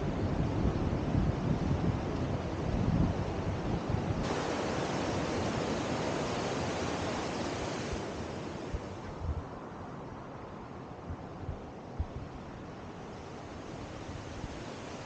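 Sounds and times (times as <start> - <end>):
wind rumble on microphone: 0.0 - 15.0
river rapids rushing: 4.2 - 8.8.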